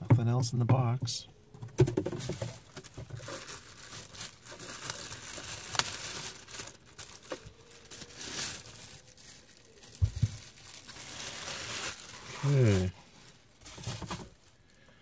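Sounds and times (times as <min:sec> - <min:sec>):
plastic bag crinkling: 0:02.0 - 0:14.8.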